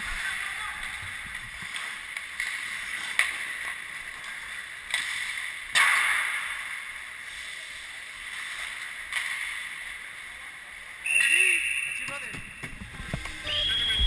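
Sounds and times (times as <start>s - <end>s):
hockey sticks or puck knocking: 0.8s - 6.7s
skates scraping ice: 1.5s - 9.6s.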